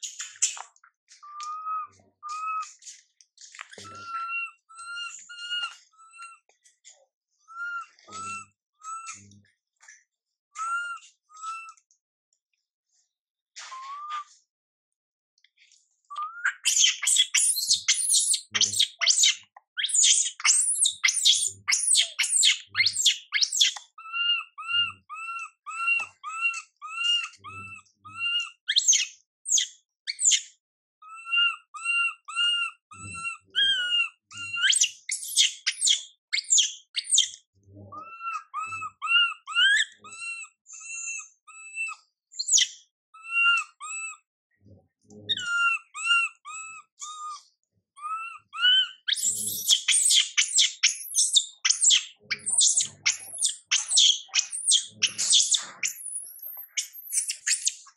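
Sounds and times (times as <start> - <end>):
baby monkey screaming: 3.8 - 6.4, 7.6 - 9.2, 10.6 - 11.8, 16.1 - 30.4, 31.0 - 37.4, 38.0 - 44.2, 45.3 - 47.4, 48.0 - 57.9.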